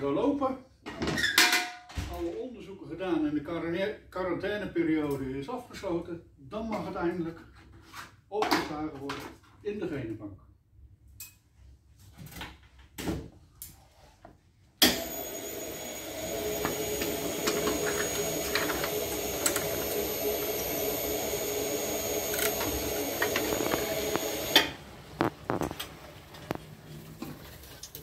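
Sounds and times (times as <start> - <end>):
machine hum with whining tones: 14.9 - 25.8.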